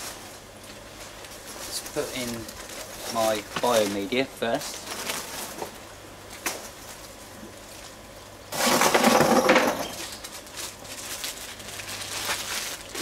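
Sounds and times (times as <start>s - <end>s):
plastic pieces clattering into tub: 8.5s - 10.2s.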